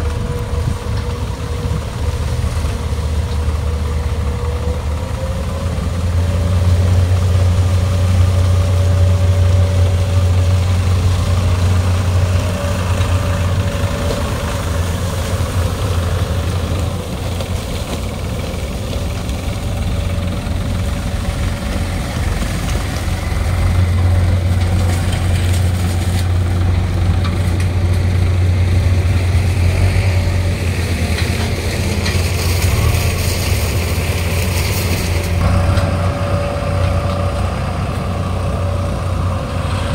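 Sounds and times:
diesel engines running: 0:00.0 - 0:39.9
thin steady whine: 0:34.8 - 0:39.9.

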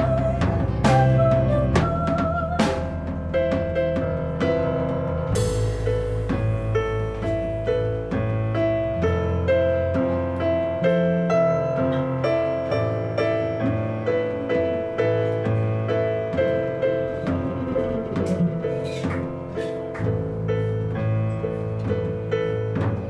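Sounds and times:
electric bass guitar: 0:00.0 - 0:23.0
keyboard piano notes: 0:00.0 - 0:23.0.

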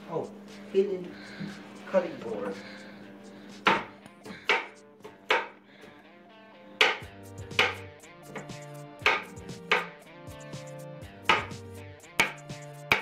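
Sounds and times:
quiet background music: 0:00.0 - 0:13.0
knife chopping on cutting board: 0:03.6 - 0:05.6, 0:06.8 - 0:10.0, 0:11.2 - 0:13.0.

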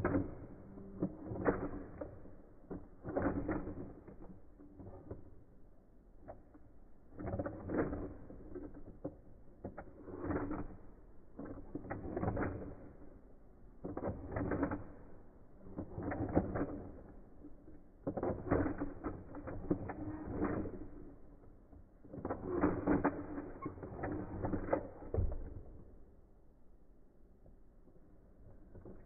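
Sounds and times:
plastic toy clicking and clattering: 0:13.8 - 0:21.5.

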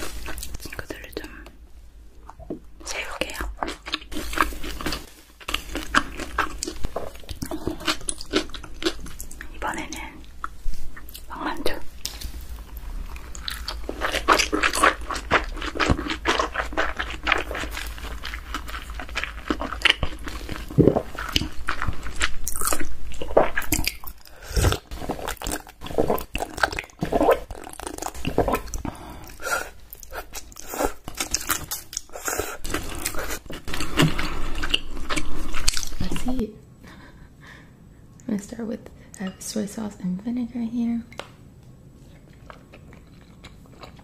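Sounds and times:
person chewing with crunching: 0:02.2 - 0:11.3, 0:12.0 - 0:36.4, 0:41.9 - 0:44.0
wet mouth sounds: 0:13.2 - 0:36.1.

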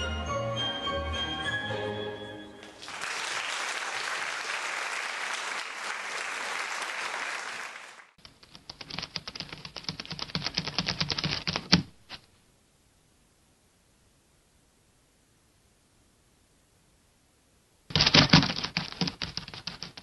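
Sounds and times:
audience applauding: 0:02.6 - 0:08.2.

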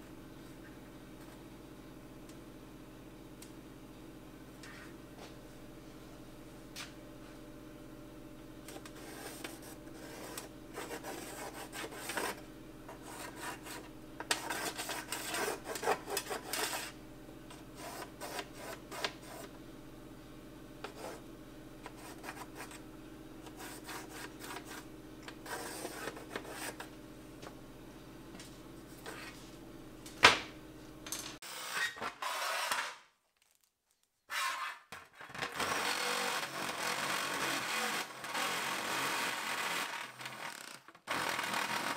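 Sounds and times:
steady low hum: 0:00.0 - 0:31.4
pencil scratching on metal: 0:08.8 - 0:17.0, 0:17.8 - 0:19.5, 0:20.8 - 0:21.2, 0:21.8 - 0:22.8, 0:23.5 - 0:24.8, 0:25.4 - 0:26.8.

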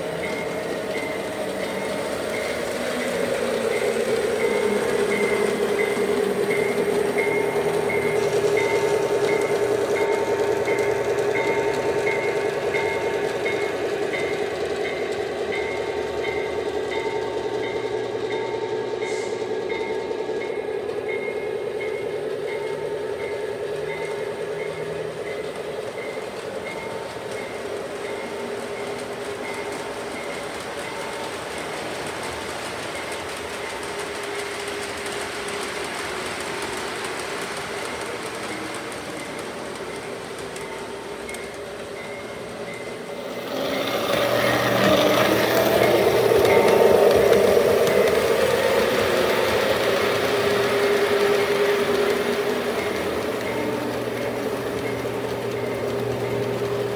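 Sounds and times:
wheels rumbling and clattering: 0:19.7 - 0:56.9
model train motor whine: 0:40.6 - 0:56.9.

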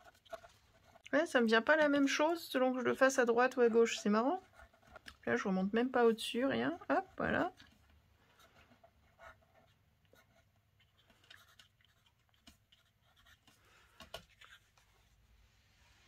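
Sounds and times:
pen scratching on paper: 0:00.0 - 0:01.0, 0:03.0 - 0:05.1, 0:08.4 - 0:10.5, 0:11.3 - 0:14.6.

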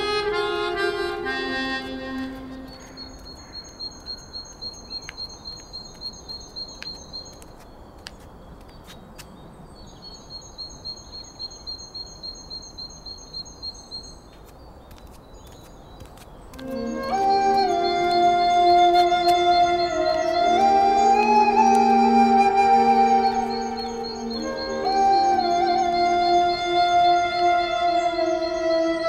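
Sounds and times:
outdoor ambient noise: 0:00.0 - 0:29.0
high repeated chirps: 0:16.6 - 0:29.0.

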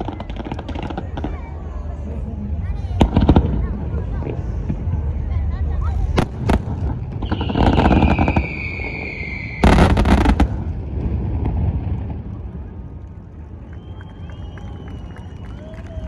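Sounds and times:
fireworks bursting: 0:00.0 - 0:01.7, 0:02.6 - 0:05.1, 0:06.1 - 0:13.0
fireworks crackling: 0:00.0 - 0:16.0
falling fireworks whistle: 0:07.1 - 0:10.4, 0:13.6 - 0:16.0.

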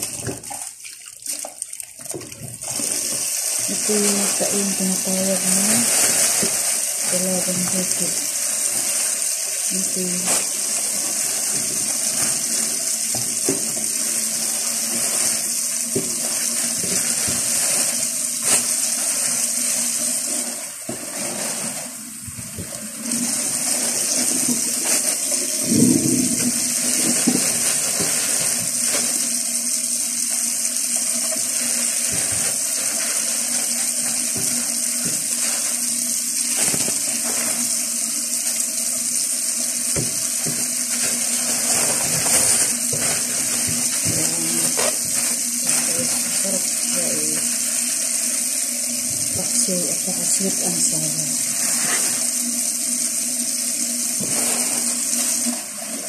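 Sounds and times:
plastic bags crinkling: 0:03.7 - 0:06.8, 0:14.8 - 0:20.1, 0:23.1 - 0:29.5, 0:31.1 - 0:38.8, 0:40.0 - 0:47.8
tap running into sink: 0:10.3 - 0:21.6, 0:22.2 - 0:49.7, 0:51.4 - 0:55.6.

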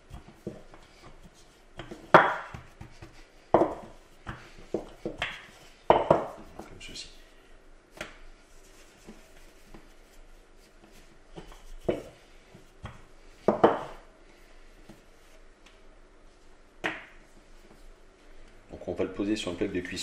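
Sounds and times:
rolling pin on countertop: 0:00.0 - 0:06.7, 0:07.9 - 0:14.1.

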